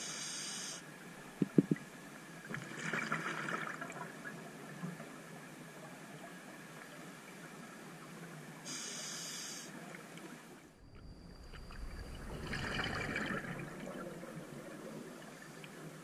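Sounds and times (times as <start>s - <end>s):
regulator hissing inhale: 0.0s - 0.9s, 8.7s - 9.7s
bubbling exhale underwater: 11.6s - 15.2s.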